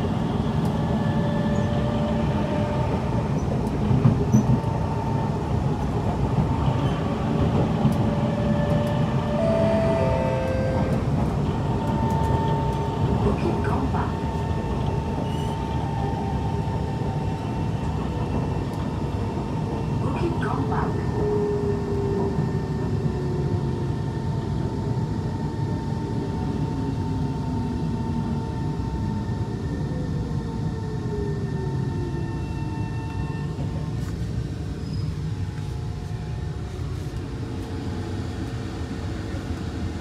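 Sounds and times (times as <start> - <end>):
train wheels rumbling on track: 0.0 - 40.0
train motor tones falling in pitch: 8.3 - 11.2.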